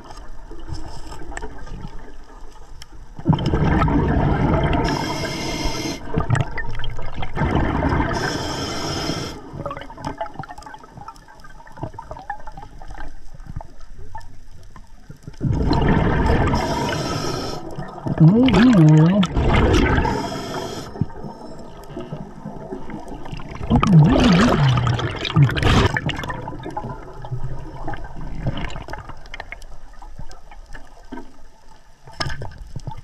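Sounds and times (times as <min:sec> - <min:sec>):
exhaled bubbles rushing: 0:03.2 - 0:05.2, 0:06.0 - 0:08.4, 0:15.4 - 0:29.6
regulator inhale hiss: 0:04.8 - 0:06.2, 0:08.1 - 0:09.6, 0:16.5 - 0:17.9, 0:20.0 - 0:22.1.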